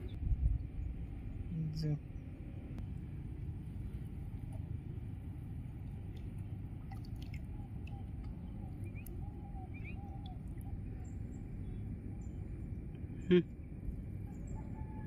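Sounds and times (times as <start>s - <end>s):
steady low rumble: 0.0s - 15.0s
water dripping and sloshing: 3.8s - 11.6s.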